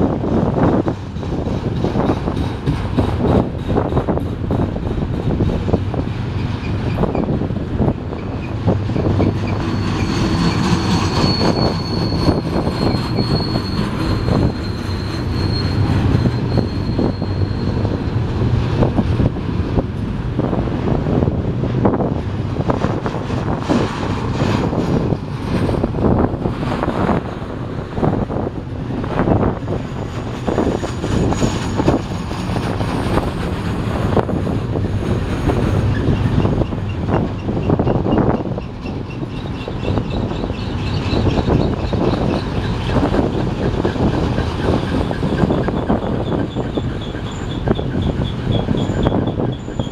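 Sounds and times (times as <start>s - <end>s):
freight train rumble: 0.0s - 49.9s
train wheels clunking: 0.2s - 49.9s
high-pitched wheel squeal: 8.1s - 18.2s, 35.8s - 49.9s.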